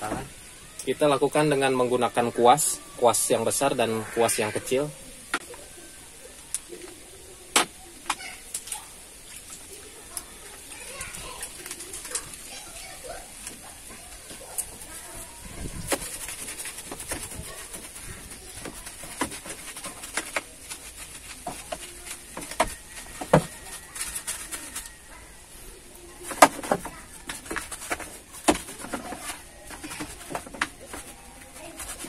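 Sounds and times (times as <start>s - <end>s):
bird cooing: 4.6s - 8.5s
brush scrubbing soapy water: 8.2s - 32.0s.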